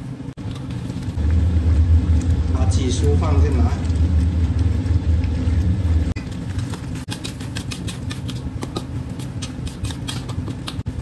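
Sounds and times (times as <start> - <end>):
low steady rumble: 0.0 - 9.8.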